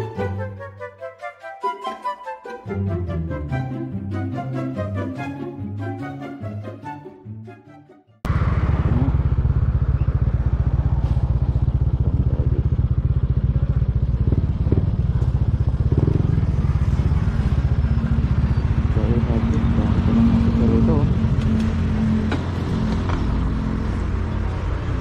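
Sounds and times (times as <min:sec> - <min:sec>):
background music: 0:00.0 - 0:08.3
motorcycle engine running: 0:08.3 - 0:25.0.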